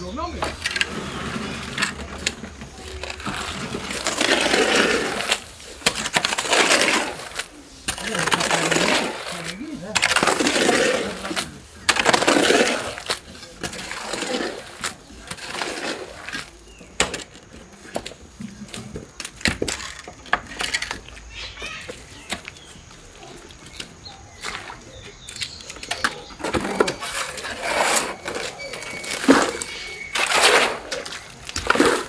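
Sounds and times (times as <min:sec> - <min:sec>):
people talking: 0:00.0 - 0:00.6, 0:07.9 - 0:11.8, 0:25.7 - 0:28.6
shovel and buckets knocking: 0:00.2 - 0:22.6, 0:23.3 - 0:32.0.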